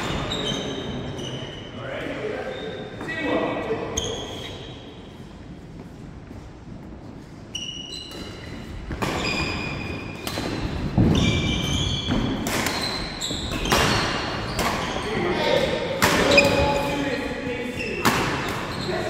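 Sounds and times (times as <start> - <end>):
rackets hitting shuttlecock: 10.1 - 15.0.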